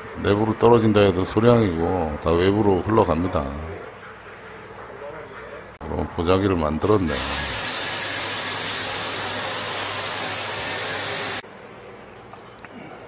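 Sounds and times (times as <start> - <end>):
high-pressure water spray hissing: 7.1 - 11.4.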